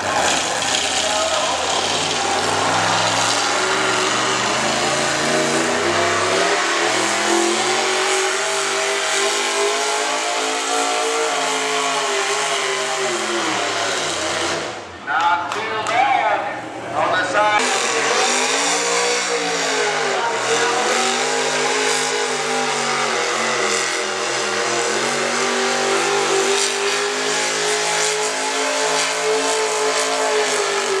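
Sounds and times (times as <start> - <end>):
engine at full throttle: 0.0 - 15.0, 17.5 - 31.0.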